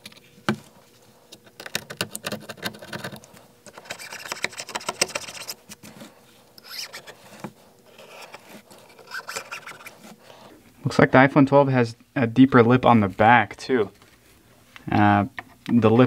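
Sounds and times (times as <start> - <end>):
glass scraped with metal tool: 8.9 - 9.9.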